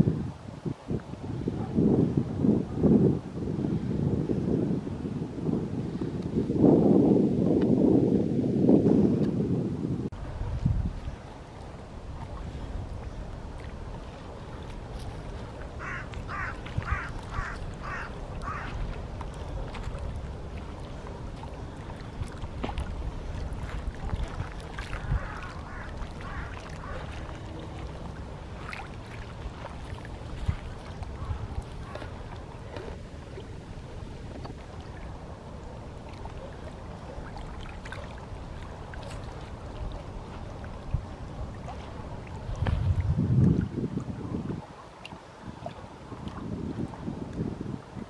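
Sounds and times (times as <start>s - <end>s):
water trickling and lapping: 10.1s - 48.0s.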